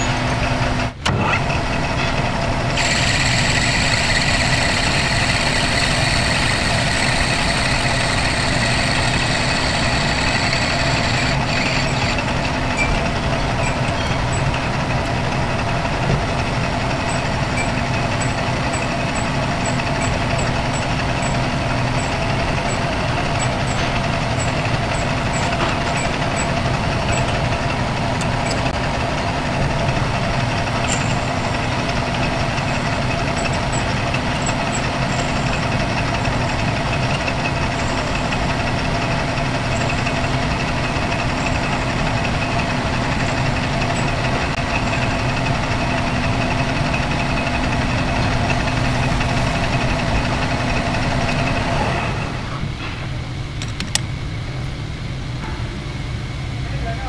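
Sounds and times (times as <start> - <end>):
metal lathe humming and whining: 0.0 - 52.8
sharp click: 53.6 - 54.1.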